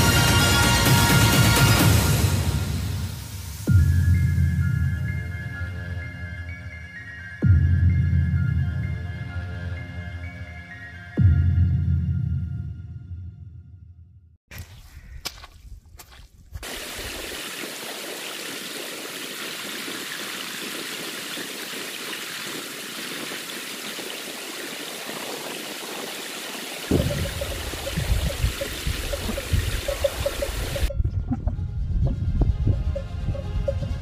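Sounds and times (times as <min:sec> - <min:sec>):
stream running over rocks: 0:16.6 - 0:30.9.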